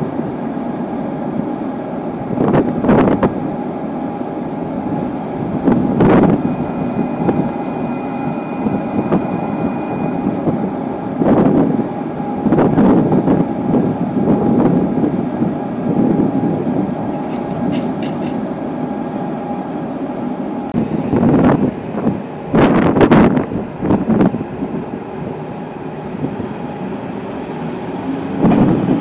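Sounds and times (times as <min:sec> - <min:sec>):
electric locomotive humming: 0:00.0 - 0:29.0
rushing noise: 0:02.4 - 0:15.0.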